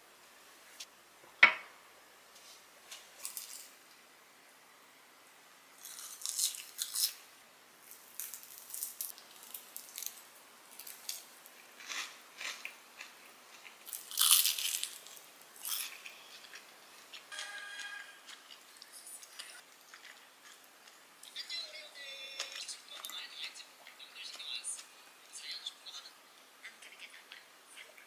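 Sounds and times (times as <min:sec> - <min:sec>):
crunching and chewing food: 0:02.9 - 0:03.8, 0:05.8 - 0:07.2, 0:07.8 - 0:21.4.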